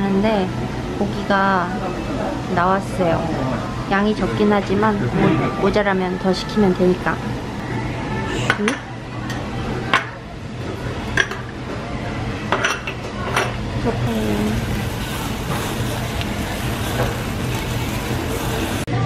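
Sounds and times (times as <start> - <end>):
meat sizzling on grill: 14.1 - 18.9.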